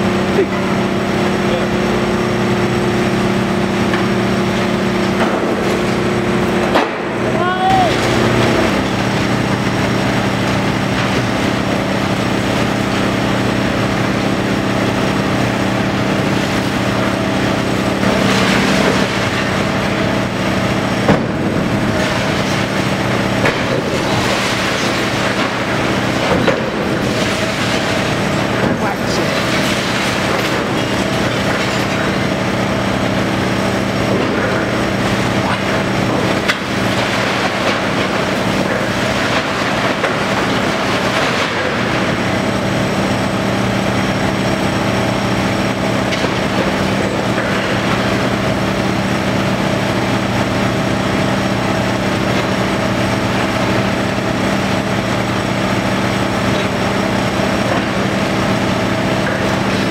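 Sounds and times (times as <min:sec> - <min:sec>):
excavator engine and hydraulic drone: 0:00.0 - 0:59.9
debris clattering down: 0:18.0 - 0:32.7, 0:34.0 - 0:42.7
concrete crunching and tearing: 0:21.0 - 0:32.8.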